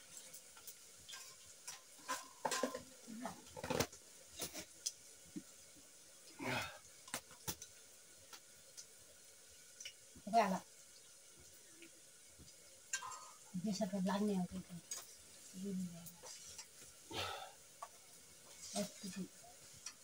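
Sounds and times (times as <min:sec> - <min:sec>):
dishes and utensils clinking: 0:01.1 - 0:02.9.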